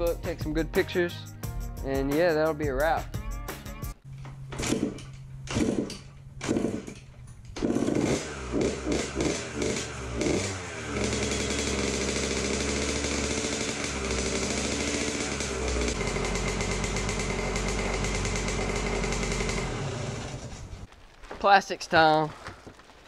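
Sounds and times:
motorcycle kick starting: 0:04.4 - 0:21.4
two-stroke engine revving and idling: 0:04.6 - 0:07.0, 0:07.6 - 0:20.8.

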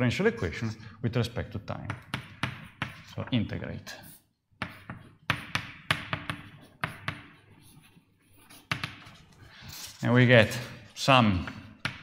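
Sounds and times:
pen tapping on a board: 0:01.9 - 0:03.1, 0:04.6 - 0:07.4, 0:08.7 - 0:09.2
writing scratching on a board: 0:01.9 - 0:03.2, 0:04.0 - 0:10.0.

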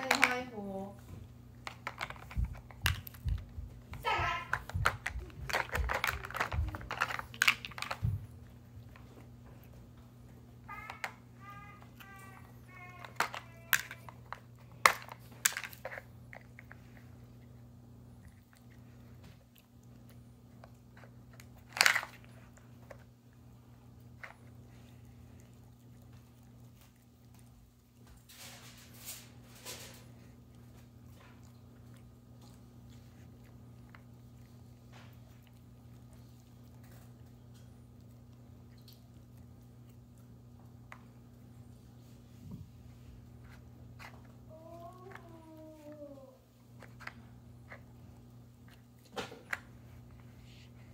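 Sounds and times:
dog crunching treats: 0:00.0 - 0:42.2
steady low hum: 0:00.0 - 0:50.9
plastic pieces clicking: 0:04.5 - 0:08.0.

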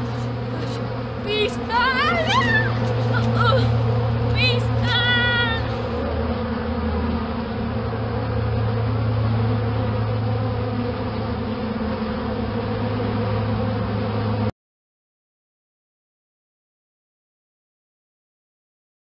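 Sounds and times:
bees buzzing: 0:00.0 - 0:14.5.

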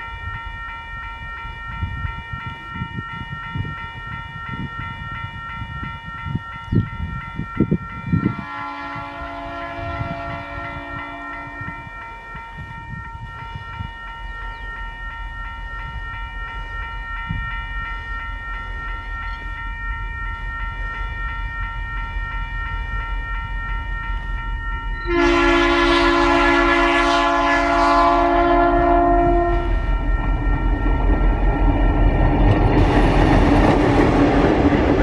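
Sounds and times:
crossing bells ringing: 0:00.0 - 0:35.0
diesel locomotive engine rumble: 0:00.0 - 0:35.0
locomotive horn blast: 0:08.3 - 0:11.9, 0:25.0 - 0:29.9.

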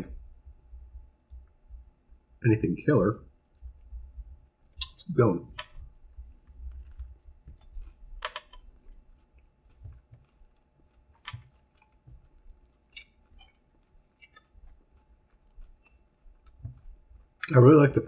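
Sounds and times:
person chewing with wet smacks: 0:05.7 - 0:17.5.

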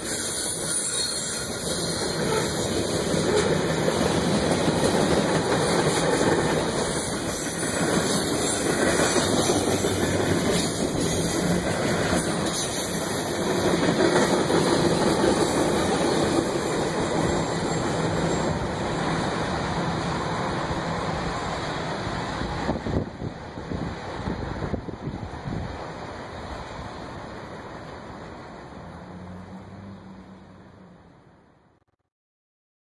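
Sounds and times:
freight train wheels rolling: 0:00.0 - 0:31.0.

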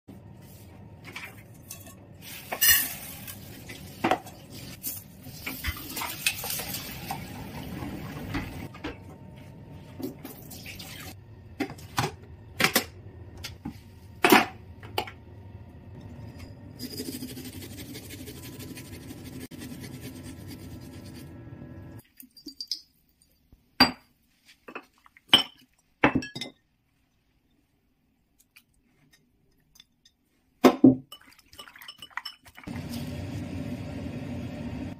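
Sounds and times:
pots and lids clinking: 0:01.3 - 0:03.4.

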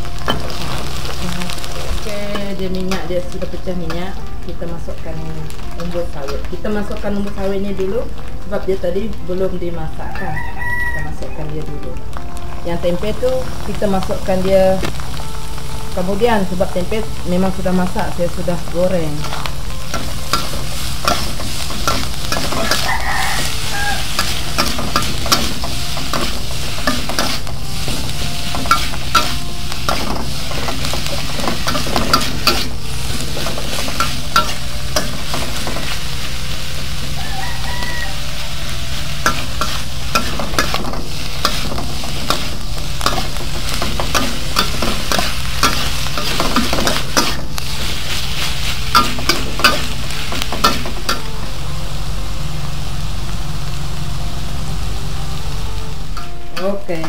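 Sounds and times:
food sizzling in oil: 0:00.0 - 0:57.0
spatula scraping a wok: 0:19.2 - 0:51.4.

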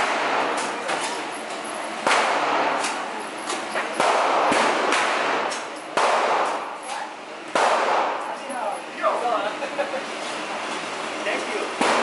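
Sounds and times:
loud echoing gunshots: 0:00.0 - 0:00.6, 0:02.0 - 0:02.8, 0:04.0 - 0:06.8, 0:07.5 - 0:08.2, 0:11.8 - 0:12.0
faint gunshot cracks: 0:07.5 - 0:08.2.

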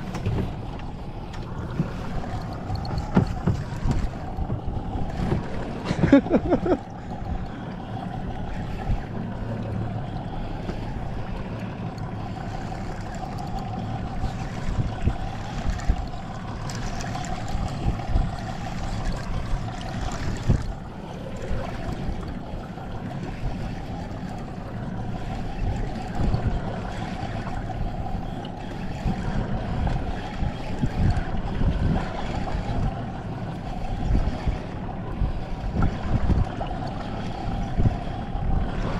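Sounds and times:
sea slapping boat: 0:00.0 - 0:38.9
wind buffeting microphone: 0:00.0 - 0:38.9.

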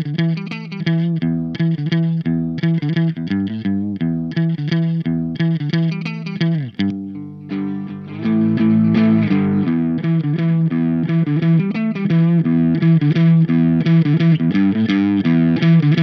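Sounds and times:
overdriven electric guitar riff: 0:00.0 - 0:16.0.

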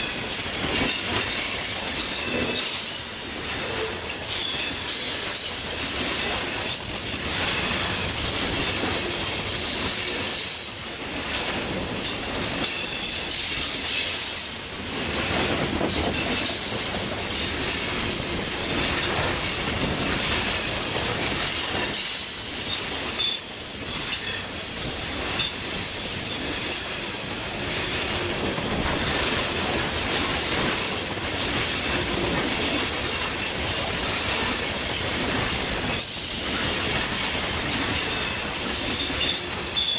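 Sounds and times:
freight train rolling past: 0:00.0 - 0:39.9
steel wheels clacking over rail joints: 0:00.0 - 0:39.9
high-pitched wheel squeal: 0:20.7 - 0:24.5.

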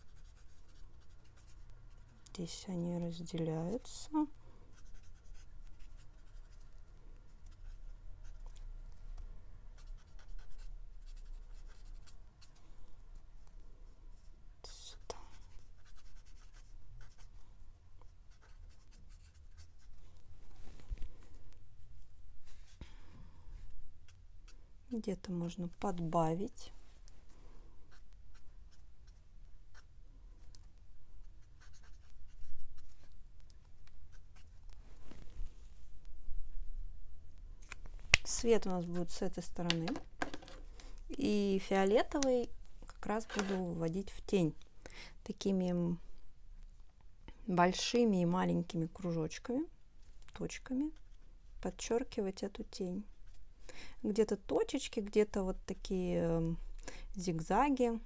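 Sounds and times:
marker scratching on paper: 0:00.0 - 0:02.2, 0:04.7 - 0:06.6, 0:07.4 - 0:08.6, 0:09.8 - 0:12.6, 0:14.9 - 0:17.4, 0:18.3 - 0:19.9, 0:27.9 - 0:29.9, 0:31.2 - 0:33.2, 0:43.1 - 0:43.8
low steady hum: 0:00.0 - 0:58.0
marker nib dabbing on paper: 0:30.6 - 0:34.5.

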